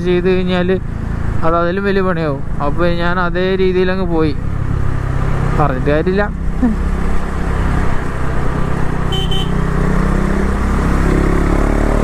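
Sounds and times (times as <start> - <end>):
wind and road noise: 0.0 - 12.0
motorcycle engine running: 5.9 - 10.8
horn beep: 9.1 - 9.6.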